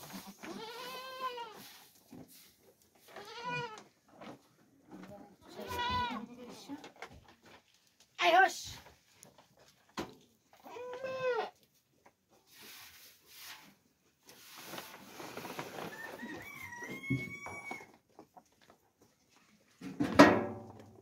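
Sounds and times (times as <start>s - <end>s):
rustling noise: 0.0s - 10.7s, 11.6s - 17.0s
rooster crowing: 15.9s - 17.9s.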